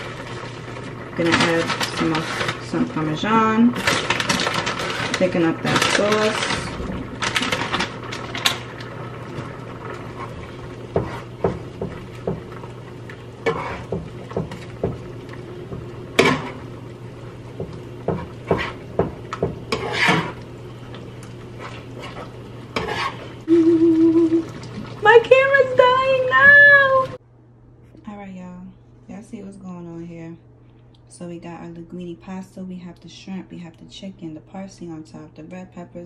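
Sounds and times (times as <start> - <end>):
utensil scraping in pan: 0.0 - 12.4, 13.4 - 15.0, 18.0 - 23.5
steady low hum: 0.0 - 36.0.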